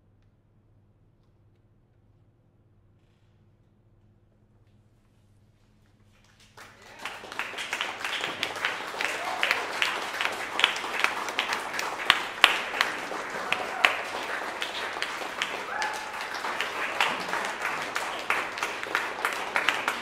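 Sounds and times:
audience applauding: 6.3s - 20.0s.

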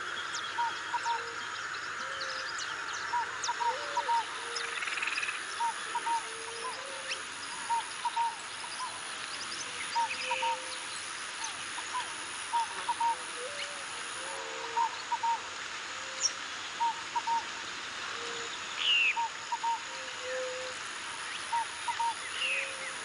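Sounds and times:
birds calling in doubled notes: 0.0s - 13.8s, 21.3s - 23.0s
steady hiss: 0.0s - 23.0s.

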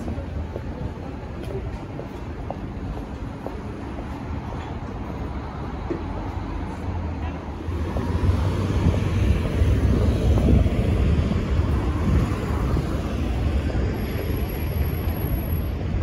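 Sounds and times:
cars driving past: 3.7s - 16.0s.

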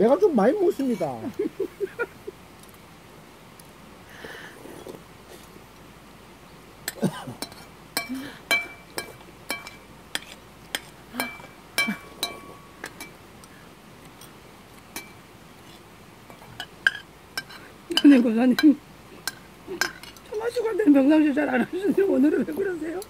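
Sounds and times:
spoons clinking against ceramic bowls: 0.7s - 1.4s, 6.9s - 13.2s, 14.9s - 15.2s, 16.3s - 20.7s.

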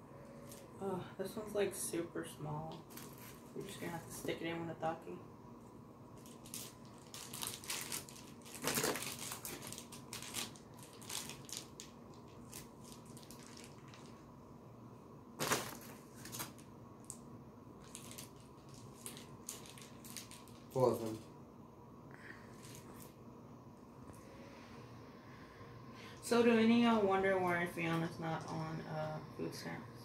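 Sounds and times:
chip bag crinkling: 6.2s - 14.2s, 15.4s - 17.2s, 17.8s - 21.2s
chips crunching: 6.3s - 14.1s, 15.4s - 17.2s.

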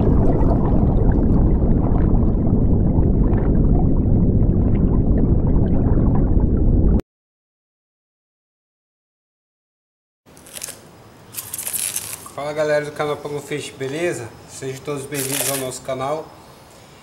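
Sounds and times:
underwater low rumble: 0.0s - 7.0s.

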